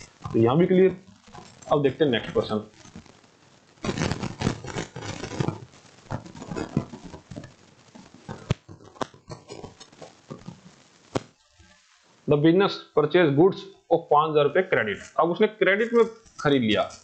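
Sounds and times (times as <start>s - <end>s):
rustling handling noise: 3.8s - 12.3s.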